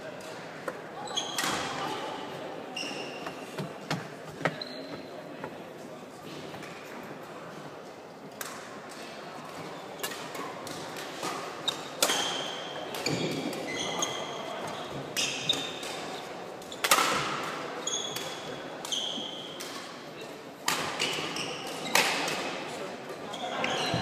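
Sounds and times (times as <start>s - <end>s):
sneakers squeaking on wooden court: 1.0s - 1.6s, 2.7s - 3.6s, 4.4s - 5.1s, 13.0s - 15.8s, 23.3s - 24.0s
racket hitting shuttlecock: 16.8s - 18.3s.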